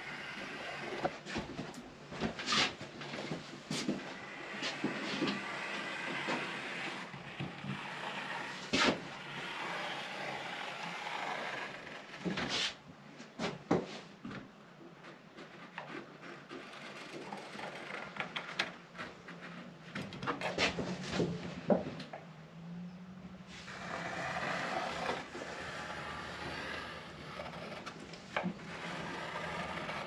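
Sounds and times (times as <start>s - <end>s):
pencil scraping on hardboard: 3.8s - 12.8s, 23.5s - 30.0s.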